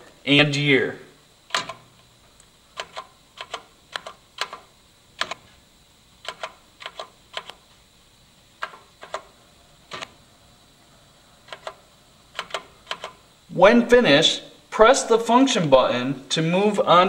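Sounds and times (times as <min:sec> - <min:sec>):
pushbutton clicks: 0:01.5 - 0:01.8, 0:12.4 - 0:13.2.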